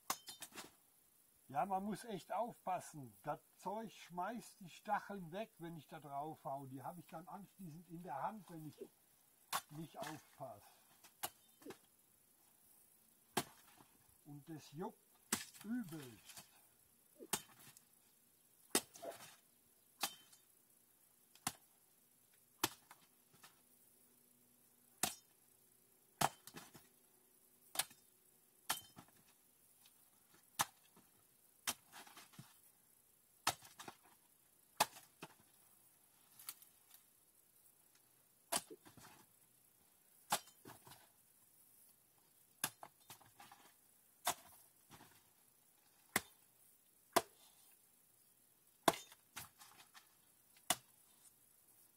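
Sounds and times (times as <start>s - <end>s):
rustle of stems and leaves: 6.9s - 13.0s, 13.6s - 20.5s, 35.4s - 40.1s
hand tool chopping plants: 9.5s - 10.4s, 13.3s - 13.9s, 15.3s - 16.6s, 17.2s - 17.8s, 18.7s - 19.4s, 20.0s - 20.4s, 26.2s - 26.9s, 33.4s - 34.1s, 34.8s - 35.4s, 40.3s - 41.0s, 42.6s - 45.2s, 46.1s - 46.4s, 47.1s - 47.4s, 48.8s - 50.9s.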